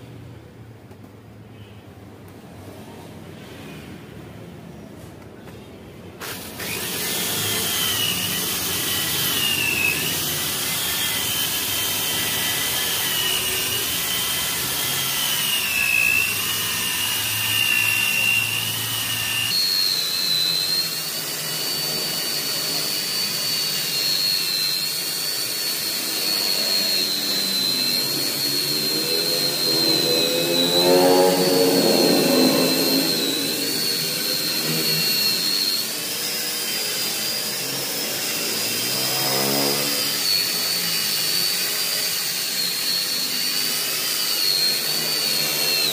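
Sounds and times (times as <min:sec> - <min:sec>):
car polisher motor whine: 0:06.2 - 0:45.9.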